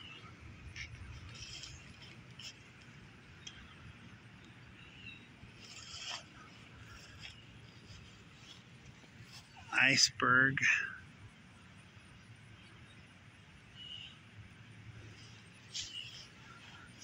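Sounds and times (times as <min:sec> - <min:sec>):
soft rustle: 0:00.7 - 0:03.1, 0:05.5 - 0:09.7
faint bird chirps: 0:13.7 - 0:14.3, 0:15.2 - 0:17.0.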